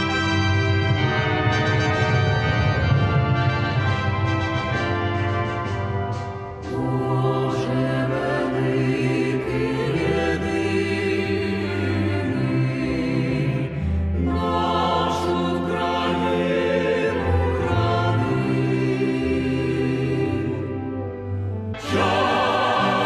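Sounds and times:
choir singing held notes: 0:06.5 - 0:23.0.

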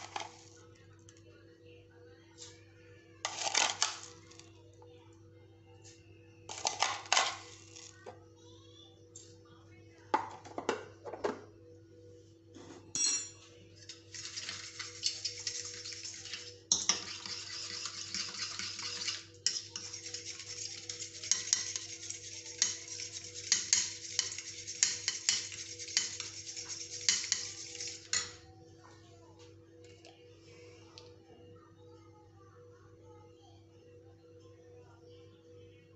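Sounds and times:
fork beating eggs in bowl: 0:13.8 - 0:28.4.

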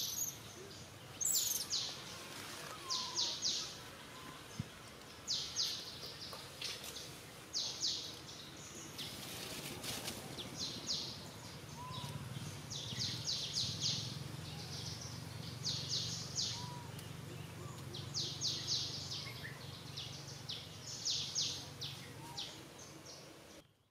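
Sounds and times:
bird chirping: 0:00.0 - 0:02.2, 0:10.4 - 0:23.9.

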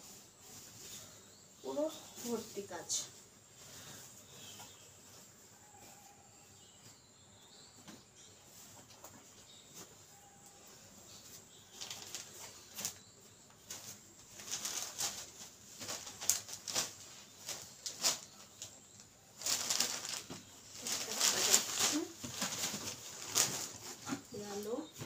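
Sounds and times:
fabric rustling and flapping: 0:19.4 - 0:25.0.

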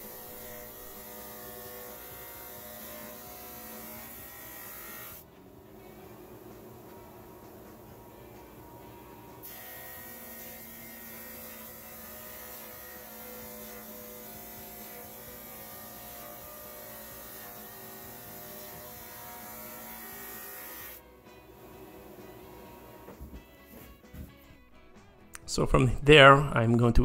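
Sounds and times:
drum sander sanding wood: 0:00.0 - 0:05.2, 0:09.5 - 0:21.0.

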